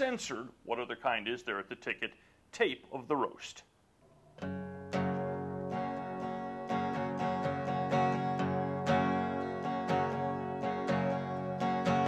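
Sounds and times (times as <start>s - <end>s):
acoustic guitars strummed: 4.3s - 12.0s.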